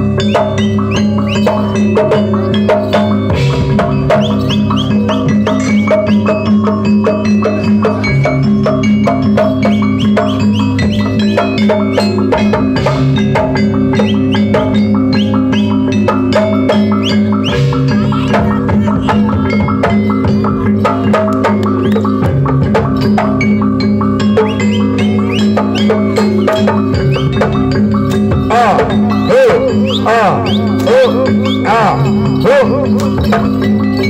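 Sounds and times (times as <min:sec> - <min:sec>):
gamelan music: 0:00.0 - 0:34.0
steady ringing drone: 0:00.0 - 0:34.0.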